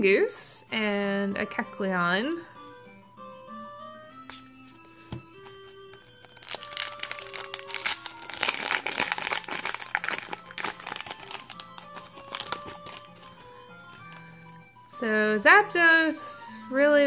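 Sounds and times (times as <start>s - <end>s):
soft background music: 0.0s - 17.0s
foil wrapper crinkling: 5.4s - 14.3s.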